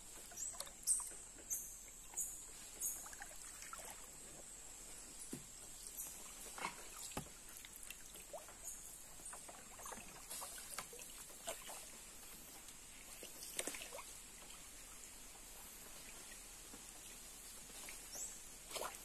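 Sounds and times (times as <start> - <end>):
paddle splashing in water: 0.0 - 15.1, 15.9 - 19.0
water dripping plinks: 0.1 - 4.1.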